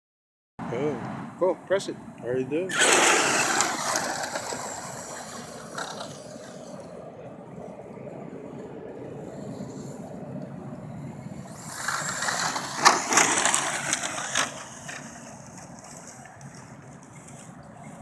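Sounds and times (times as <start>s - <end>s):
toy truck motor and tyres: 2.7s - 7.6s, 8.5s - 18.0s
loud rush with crackles: 2.8s - 18.0s.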